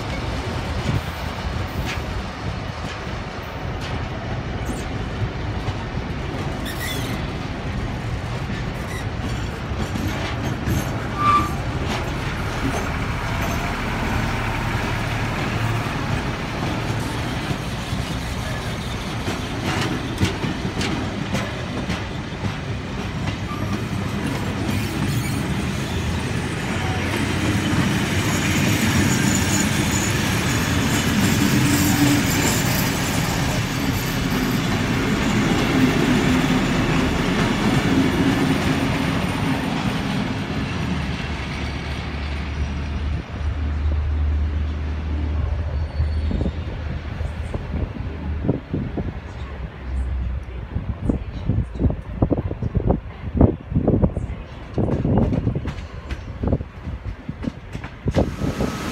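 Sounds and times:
train wheels rumbling over rails: 0:00.0 - 0:58.9
faint wheel squeal: 0:06.6 - 0:07.4, 0:10.7 - 0:11.6, 0:45.6 - 0:46.8.

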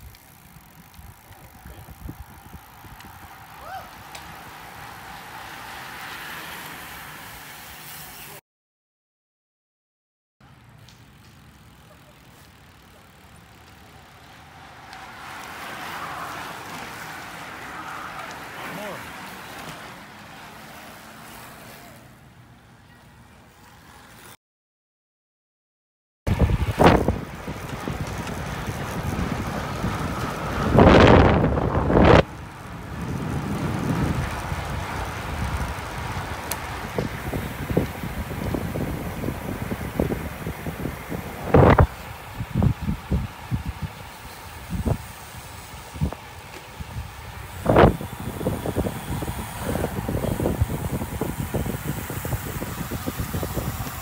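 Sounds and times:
bicycles sweeping past: 0:00.0 - 0:08.4, 0:10.4 - 0:24.4, 0:26.3 - 0:54.0
hiss of tyres and rushing air: 0:26.3 - 0:54.0
wind on microphone: 0:26.3 - 0:54.0.

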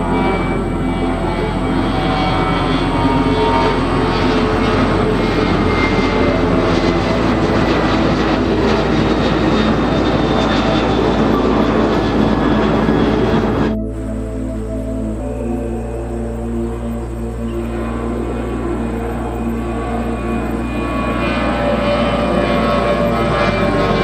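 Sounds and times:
jet engines at takeoff: 0:00.0 - 0:24.0.

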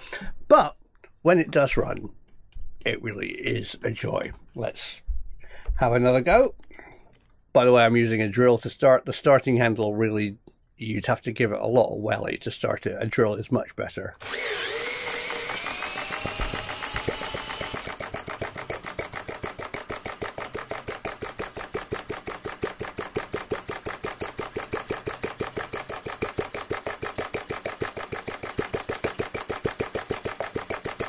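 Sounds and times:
cordless drill whining: 0:14.2 - 0:31.0.

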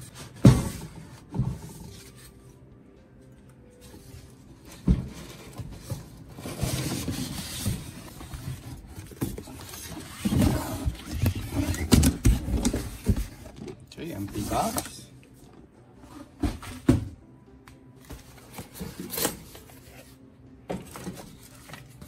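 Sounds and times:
cardboard scraping and rustling: 0:04.0 - 0:14.9.

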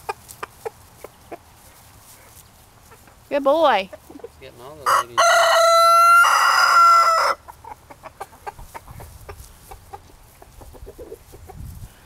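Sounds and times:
faint chicken clucks: 0:00.0 - 0:03.2, 0:03.8 - 0:12.0
rooster crowing: 0:04.8 - 0:07.4.

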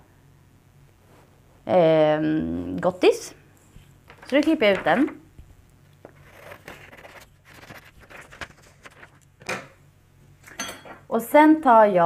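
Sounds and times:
paper rustling: 0:03.8 - 0:05.2, 0:06.0 - 0:09.3.

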